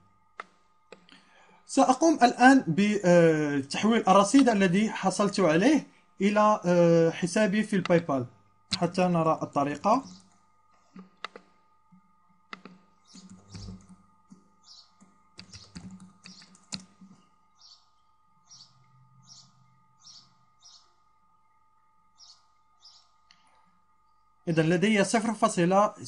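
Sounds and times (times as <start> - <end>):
keyboard typing: 7.7 - 8.1, 8.7 - 11.6, 12.5 - 17.2
mouse clicks: 11.0 - 11.5, 12.5 - 14.4, 15.0 - 17.1.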